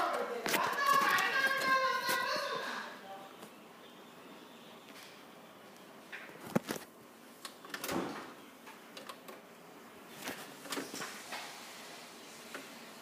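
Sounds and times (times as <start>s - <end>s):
low room hiss: 0.0s - 13.0s.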